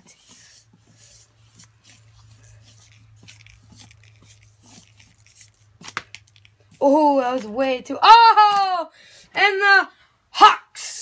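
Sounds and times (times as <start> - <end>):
paper sticks scraping and tapping: 0.0 - 7.7
faint clicks and rustles: 0.2 - 7.6.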